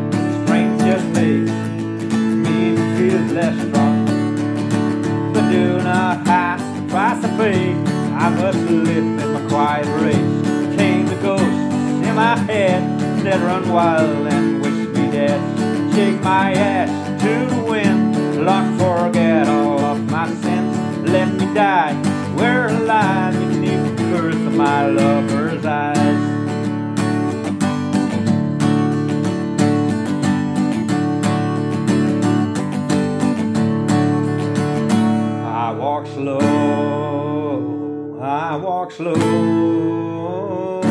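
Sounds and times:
harmonica melody: 0:00.0 - 0:28.3
acoustic guitar strumming chords: 0:00.0 - 0:40.9.

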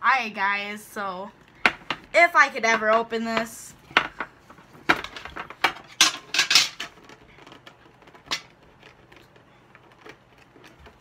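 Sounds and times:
metal tin clacking and rattling: 0:04.9 - 0:08.6.

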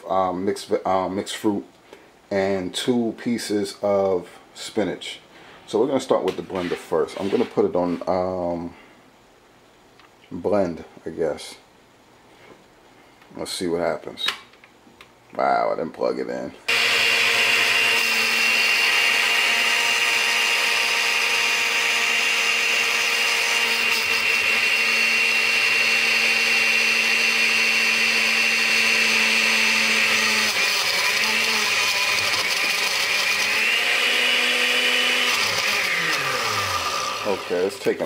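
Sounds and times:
blender motor whining: 0:16.7 - 0:38.0.

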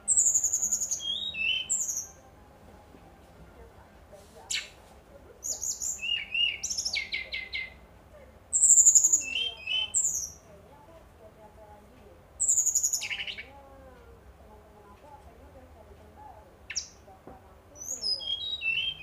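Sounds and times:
bird singing whistled notes: 0:00.0 - 0:02.2, 0:05.4 - 0:07.8, 0:08.5 - 0:10.4, 0:12.4 - 0:13.5, 0:16.7 - 0:17.0, 0:17.8 - 0:19.0.

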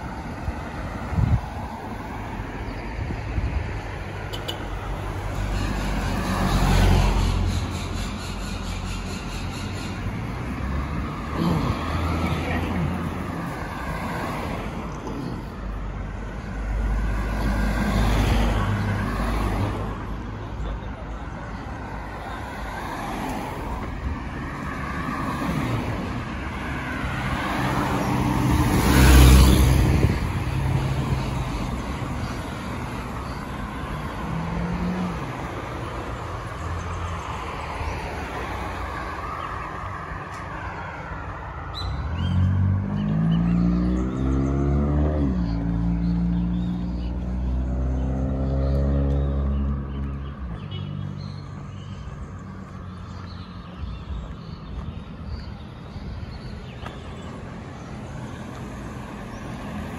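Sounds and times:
steady traffic hum: 0:00.0 - 0:59.9
vehicle passing close: 0:42.0 - 0:50.2
engine accelerating and changing gear: 0:42.2 - 0:50.3.

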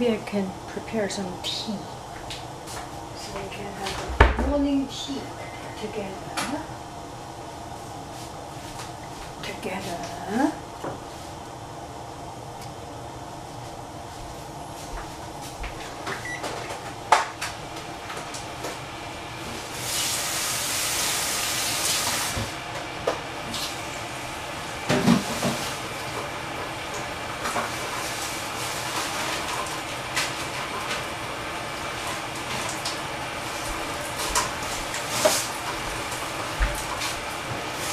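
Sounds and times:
steady low hum: 0:00.0 - 0:21.4.

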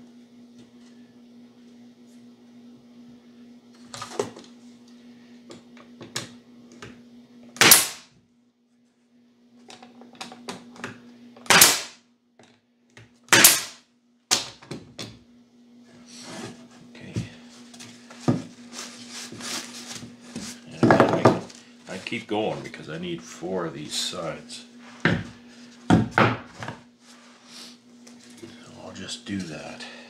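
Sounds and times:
pneumatic stapler firing: 0:07.6 - 0:08.1, 0:11.4 - 0:12.0, 0:13.3 - 0:14.4.

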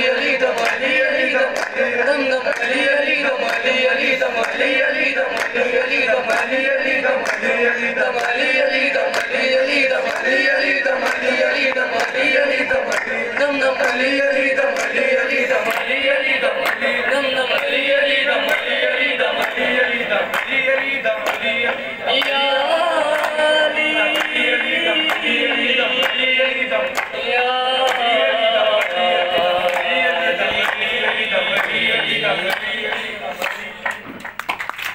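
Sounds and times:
men singing with chorus: 0:00.0 - 0:34.3
rhythmic handclaps: 0:00.0 - 0:34.9.

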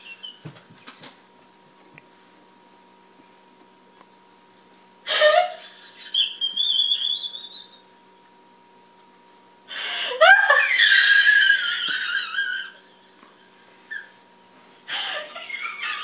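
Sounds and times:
woman laughing: 0:05.1 - 0:07.8, 0:09.8 - 0:14.2, 0:14.9 - 0:16.0.

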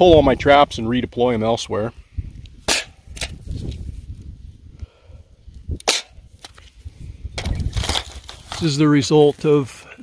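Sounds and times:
trap snapping and clacking: 0:05.8 - 0:06.6.

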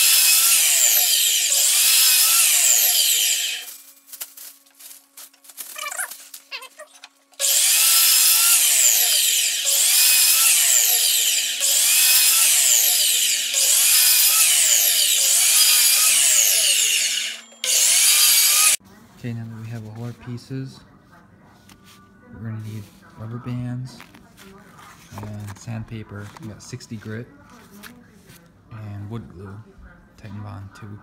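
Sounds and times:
miter saw cutting wood: 0:00.0 - 0:03.8, 0:07.4 - 0:18.8.

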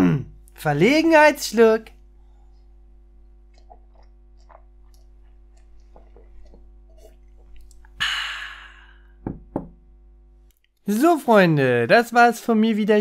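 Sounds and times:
low electrical hum: 0:00.0 - 0:13.0
mouth and swallowing ticks: 0:02.5 - 0:08.0
loud breathy exhale: 0:08.0 - 0:09.2
short knocks: 0:09.2 - 0:09.8.

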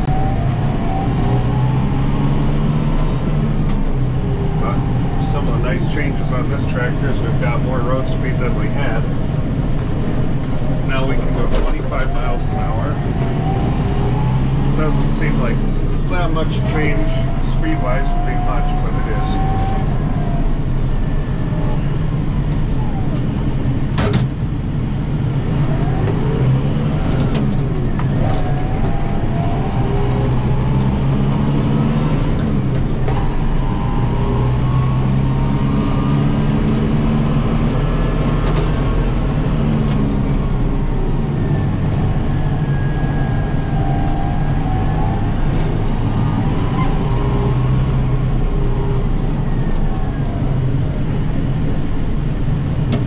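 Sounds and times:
tractor diesel engine running: 0:00.0 - 0:53.0
whine gliding in pitch: 0:10.6 - 0:23.3.

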